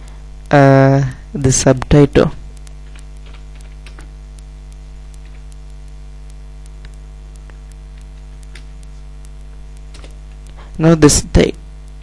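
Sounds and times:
electrical mains hum: 0:00.0 - 0:12.0
faint keyboard keystrokes: 0:02.6 - 0:04.5, 0:05.1 - 0:05.7, 0:06.7 - 0:10.6.

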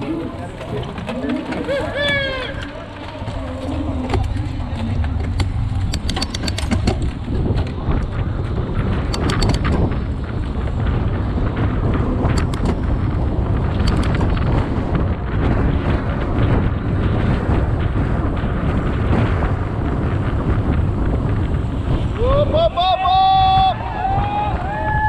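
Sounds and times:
wind buffeting microphone: 0:00.0 - 0:25.0
sharp clicks: 0:05.2 - 0:07.1, 0:09.1 - 0:09.9, 0:12.3 - 0:12.9, 0:13.7 - 0:14.5.

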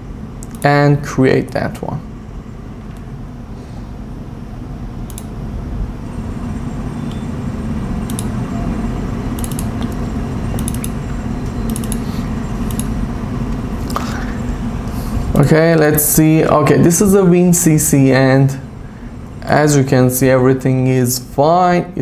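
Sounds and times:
low background hum: 0:00.0 - 0:22.0
computer mouse clicks: 0:00.4 - 0:00.7, 0:05.1 - 0:05.3, 0:08.0 - 0:08.3, 0:09.4 - 0:13.0.

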